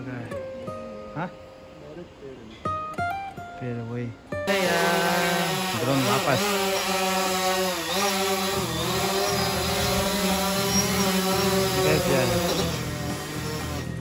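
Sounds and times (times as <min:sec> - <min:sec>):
drone propellers whining: 0:04.5 - 0:14.0.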